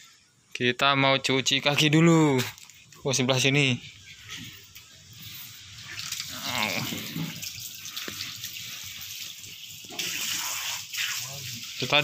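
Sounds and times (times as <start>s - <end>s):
water running from a tap: 4.8s - 12.0s.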